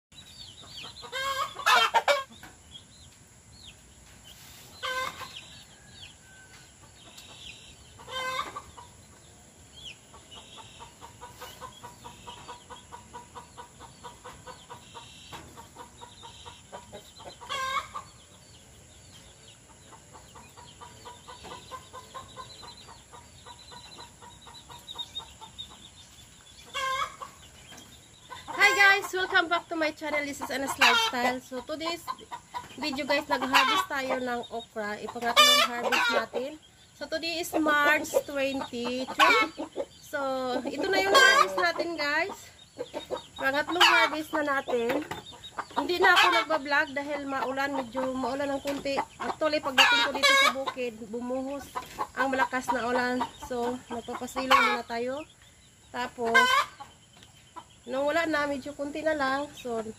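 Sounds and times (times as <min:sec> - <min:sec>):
chickens clucking: 0:00.0 - 0:59.9
louder chicken calls: 0:26.6 - 0:27.5.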